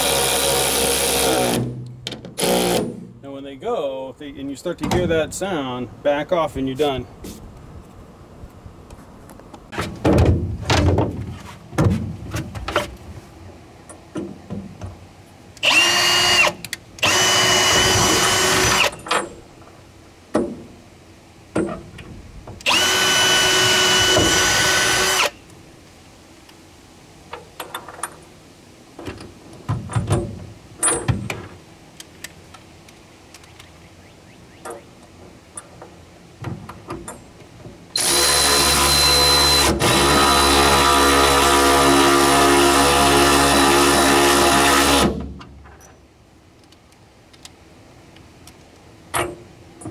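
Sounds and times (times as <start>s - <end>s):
cordless power tool whining: 0.0s - 1.7s, 15.6s - 19.0s, 22.6s - 25.4s, 38.0s - 45.2s.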